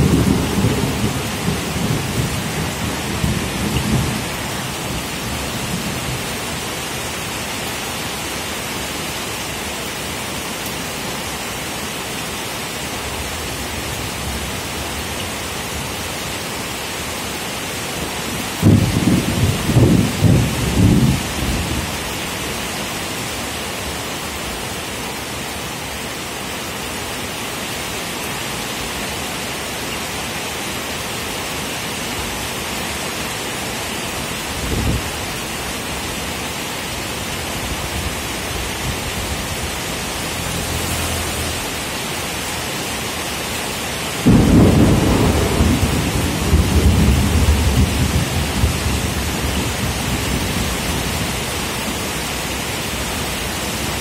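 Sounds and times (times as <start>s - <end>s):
thunder rumbling: 0.0s - 6.2s, 18.6s - 21.8s, 44.2s - 51.1s
heavy rain falling: 0.0s - 54.0s
loud peal of thunder: 18.6s - 21.6s, 44.2s - 50.6s.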